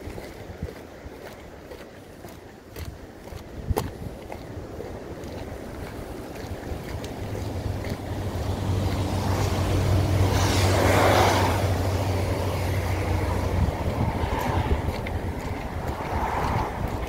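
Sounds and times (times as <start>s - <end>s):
vehicle driving past: 6.8s - 17.0s.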